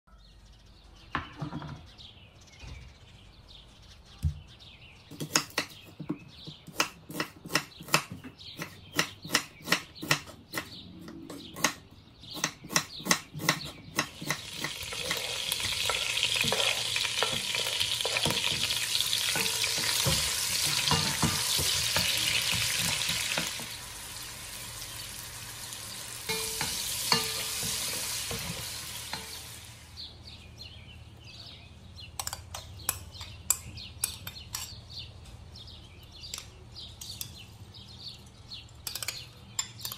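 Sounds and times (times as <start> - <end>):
knife chopping on wooden board: 5.1 - 10.7, 12.4 - 15.8
onion sizzling in oil: 13.4 - 30.0
wooden spoon stirring in pot: 14.2 - 23.6.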